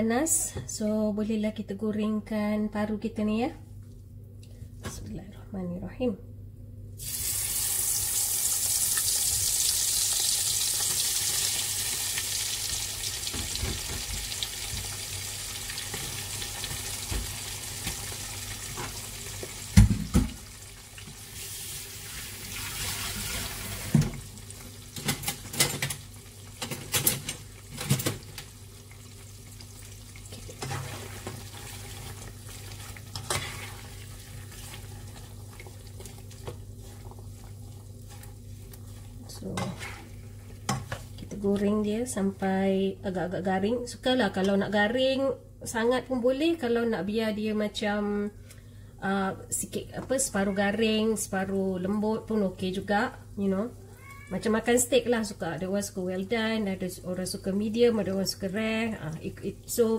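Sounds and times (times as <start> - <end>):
food sizzling in hot oil: 7.0 - 41.1
spatula scraping pot: 35.6 - 41.1.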